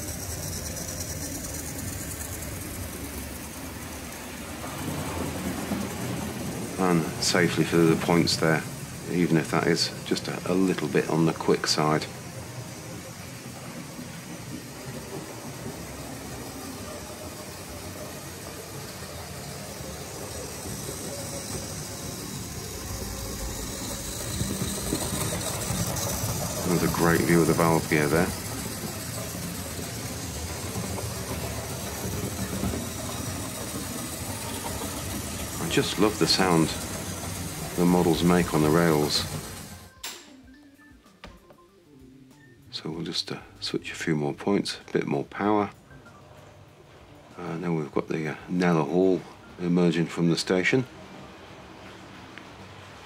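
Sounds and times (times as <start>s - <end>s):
model train motor hum: 0.0s - 39.9s
wheels rolling over rails: 0.0s - 40.0s.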